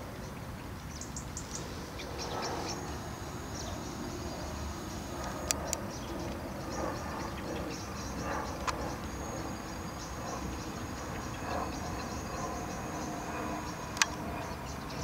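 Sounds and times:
low-flying aircraft rumble: 0.0s - 15.0s
birds chirping: 0.1s - 15.0s
high insect whine: 0.9s - 15.0s
sharp clicks: 5.2s - 6.4s, 13.9s - 14.2s.

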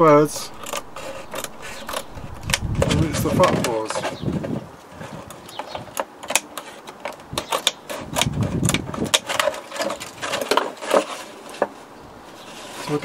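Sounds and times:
plastic bottle rustling: 0.3s - 13.0s
scissors snipping plastic: 5.5s - 11.2s.

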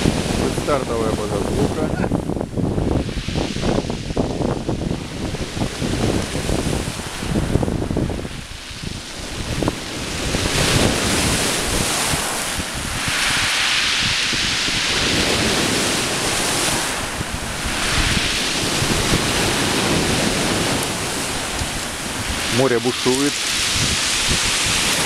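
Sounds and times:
sea surf on shingle beach: 0.0s - 25.0s
wind buffeting microphone: 0.0s - 25.0s
wave hissing over pebbles: 2.8s - 25.0s.

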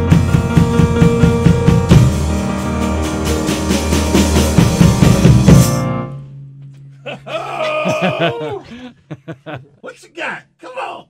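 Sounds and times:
drum hits: 0.0s - 6.0s
keyboard chords: 0.0s - 8.5s.

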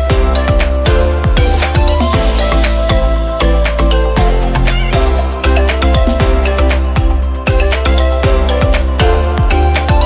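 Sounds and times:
electronic music with kick drum: 0.0s - 10.0s.

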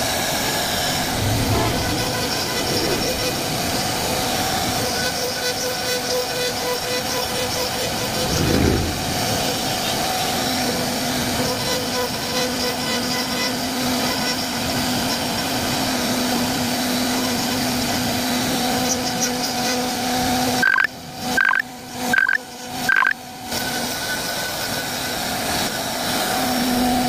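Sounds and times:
router machine humming: 0.0s - 27.0s
short high beeps: 20.6s - 23.2s.

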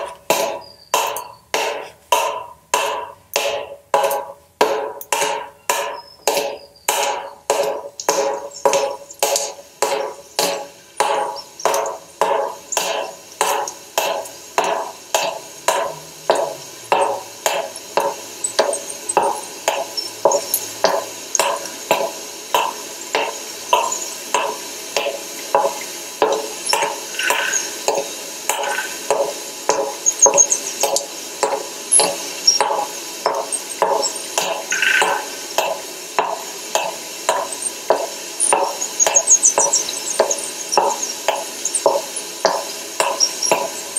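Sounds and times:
faint high chirps: 0.5s - 1.5s, 15.7s - 21.7s, 25.4s - 29.1s, 34.0s - 35.5s.

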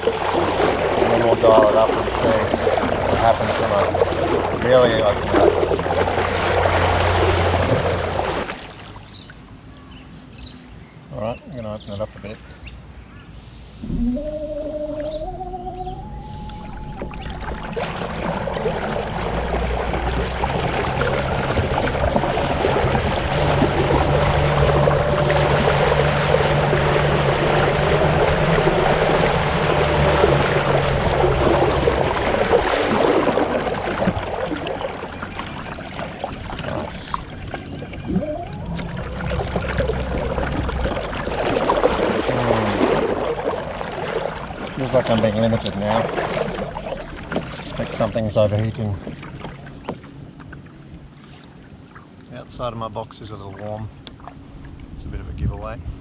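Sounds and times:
water rushing along hull: 0.0s - 9.8s, 13.4s - 56.0s.

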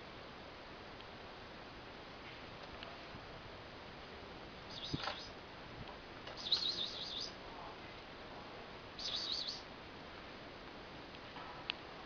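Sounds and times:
bird chirping: 4.7s - 5.4s, 6.3s - 7.4s, 9.0s - 9.7s.

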